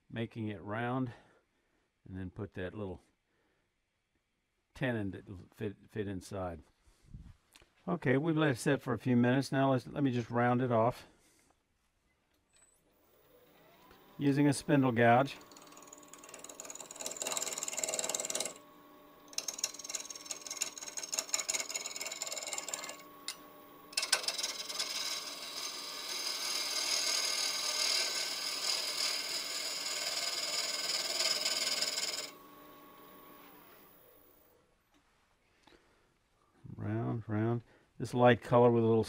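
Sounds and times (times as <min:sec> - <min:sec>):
gouge cutting wood on lathe: 0:13.1 - 0:34.3.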